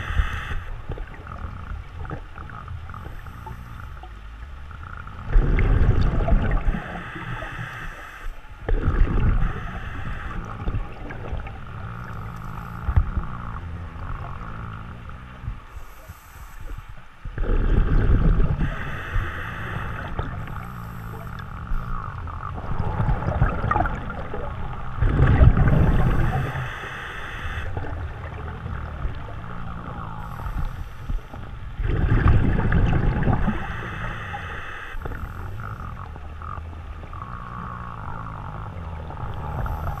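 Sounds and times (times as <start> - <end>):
diver exhaling bubbles: 5.2 - 7.5, 8.7 - 13.4, 17.4 - 26.9, 27.6 - 36.2.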